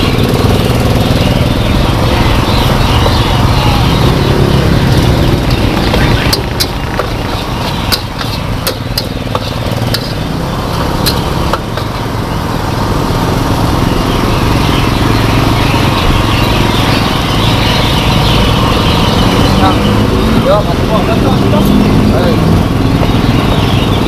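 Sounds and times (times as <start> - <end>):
low mechanical drone: 0.0 - 24.0
noodles sizzling: 1.9 - 14.0
metal spatula scraping a wok: 4.9 - 12.0.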